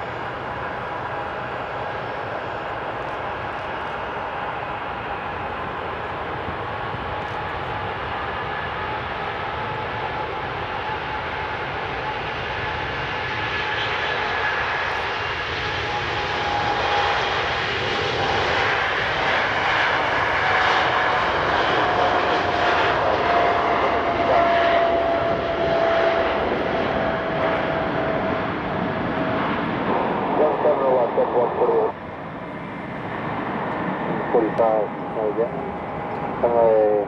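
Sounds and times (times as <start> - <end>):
jet engines at takeoff power: 0.0 - 37.0.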